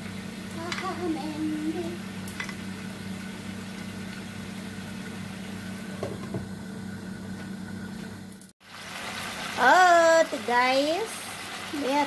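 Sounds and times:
appliance motor humming: 0:00.0 - 0:08.5.

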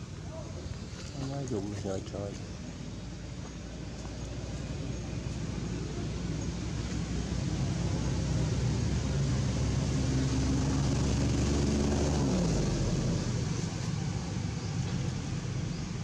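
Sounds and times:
vehicle engine passing by: 0:03.8 - 0:16.0.

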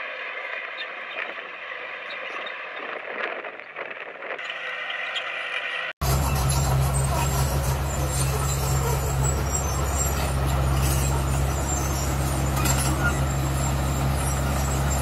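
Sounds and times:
heavy diesel engine running: 0:06.0 - 0:15.0.

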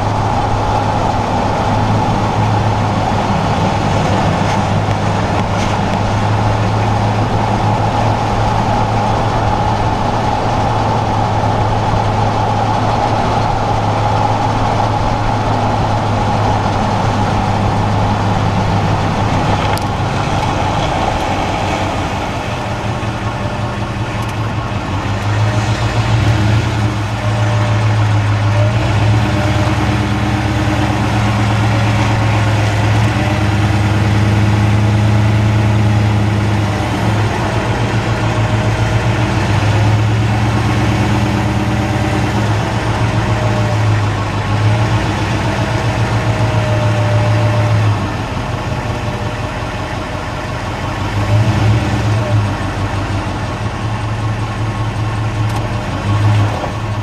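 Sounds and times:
car engine and exhaust drone: 0:00.0 - 0:57.0
tyre and road noise: 0:00.0 - 0:57.0.

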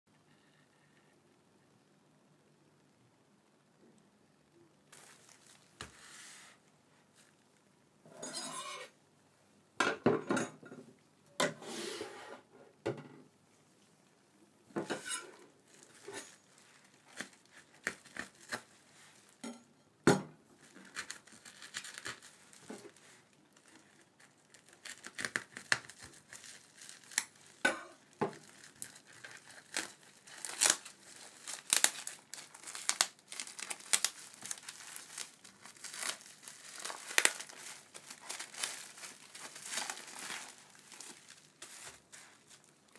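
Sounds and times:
plastic crinkling and tearing: 0:04.9 - 0:06.2, 0:15.3 - 0:19.4, 0:20.6 - 0:42.9
bubble wrap rustling: 0:04.9 - 0:07.5, 0:14.6 - 0:19.4, 0:20.5 - 0:42.9.

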